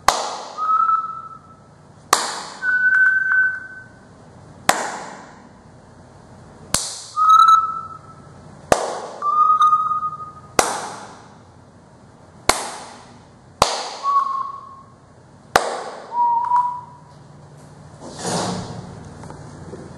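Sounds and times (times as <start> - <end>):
sharp hand claps: 0.0 - 0.7, 2.1 - 2.7, 4.7 - 5.4, 6.7 - 7.2, 8.7 - 9.2, 10.6 - 11.3, 12.5 - 14.3, 15.5 - 16.7
electronic beep: 7.2 - 8.3, 9.2 - 10.5.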